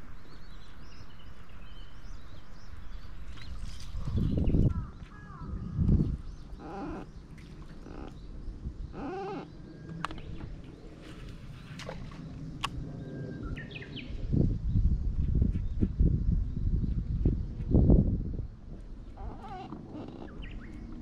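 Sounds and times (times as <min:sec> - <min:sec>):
wavering animal calls: 0:06.5 - 0:08.2, 0:08.9 - 0:09.6, 0:19.2 - 0:20.8.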